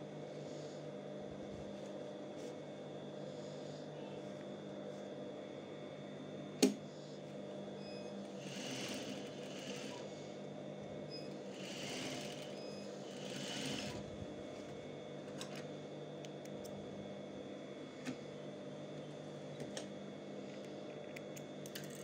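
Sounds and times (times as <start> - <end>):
steady motor hum: 0.0 - 22.0
sewing machine stitching: 11.6 - 14.0.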